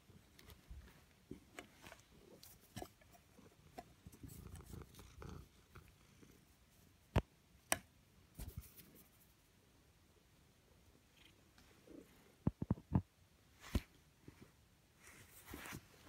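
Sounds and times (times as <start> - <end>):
cat purring: 0.2 - 6.6.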